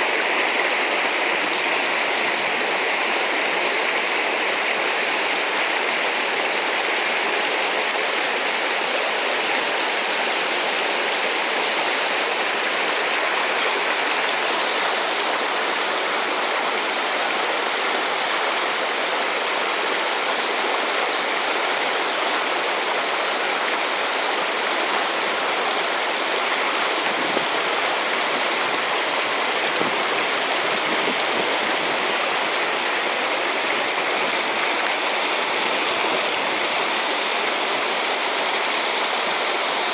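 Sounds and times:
stream rushing over stones: 0.0 - 39.9.

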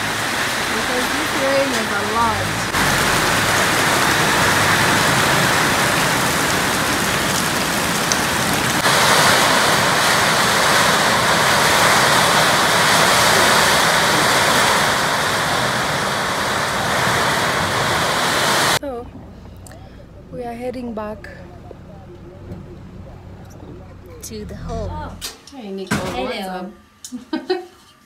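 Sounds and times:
heavy rain on a tin roof: 0.0 - 18.8.

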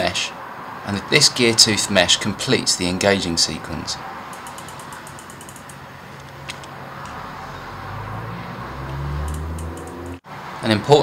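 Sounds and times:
light mechanical clicks: 4.3 - 7.2.

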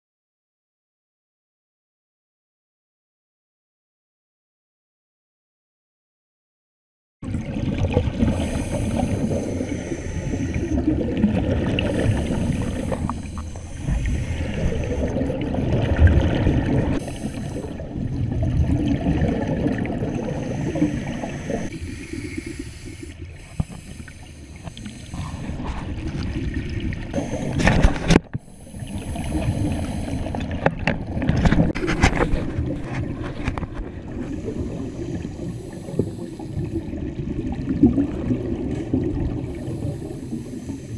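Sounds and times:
underwater exhaled bubbles rumbling: 7.2 - 40.8
regulator hiss: 20.4 - 25.2.

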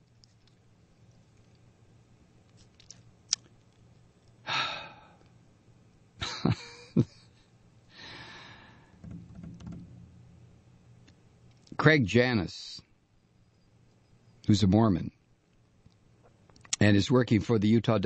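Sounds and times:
mouth clicks: 2.8 - 3.5
man breathing and sighing: 4.4 - 5.3, 7.9 - 9.0.

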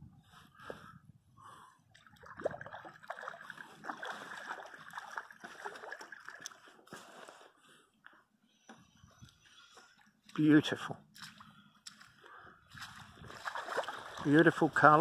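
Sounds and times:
fish splashing in water: 2.0 - 6.8, 13.3 - 14.4.

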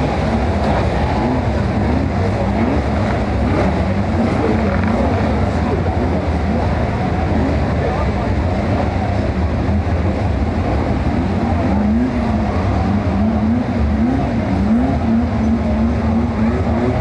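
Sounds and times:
stock car engines racing: 0.0 - 17.0
engine revving on and off: 11.1 - 17.0.

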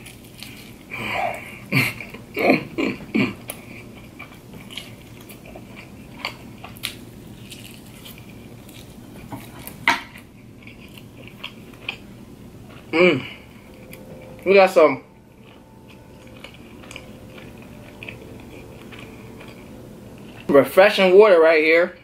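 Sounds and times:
person chewing: 0.0 - 20.8.

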